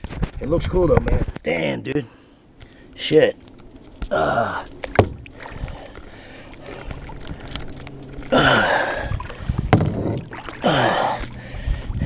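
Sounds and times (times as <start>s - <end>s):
kayak paddle splashing: 2.5s - 12.0s
sharp knocks: 4.9s - 5.3s, 9.7s - 10.2s.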